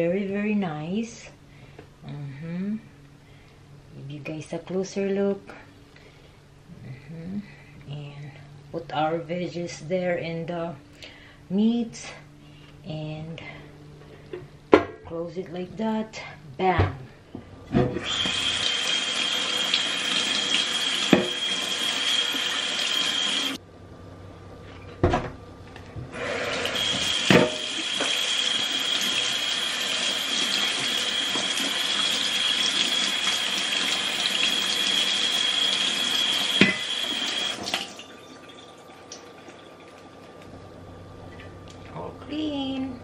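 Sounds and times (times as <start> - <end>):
tap water running into a sink: 18.0 - 23.6, 26.2 - 40.4.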